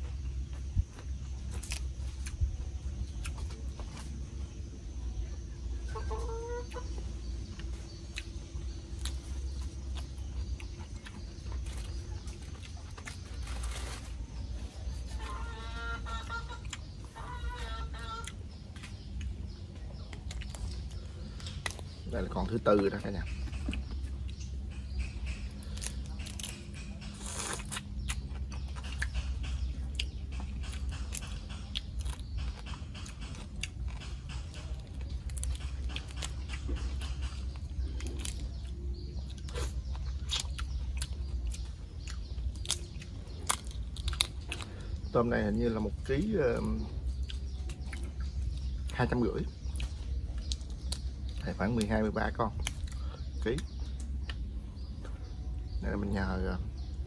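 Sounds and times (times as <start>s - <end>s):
steady low rumble: 0.0s - 57.0s
crisp crunch: 0.9s - 2.4s, 8.1s - 16.8s, 25.6s - 29.2s, 37.5s - 44.9s
wet chewing and mouth clicks: 7.4s - 13.3s, 18.2s - 22.1s, 23.3s - 45.1s, 47.1s - 49.0s, 49.6s - 51.9s, 52.6s - 55.2s.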